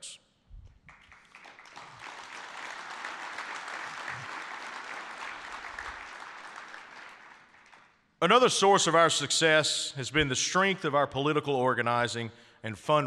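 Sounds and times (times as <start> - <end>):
audience applauding: 0.9 - 8.0.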